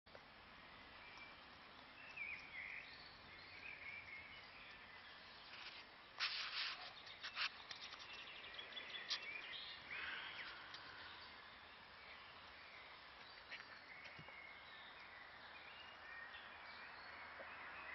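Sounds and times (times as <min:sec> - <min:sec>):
faint ticks: 0:10.4 - 0:11.1.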